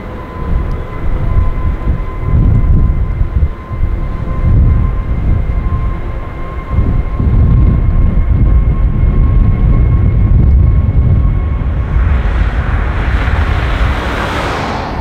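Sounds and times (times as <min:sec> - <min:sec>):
faint steady whine: 0:00.0 - 0:15.0
jet engines deep rumble: 0:00.0 - 0:15.0
hissing rush of engine noise: 0:10.5 - 0:15.0.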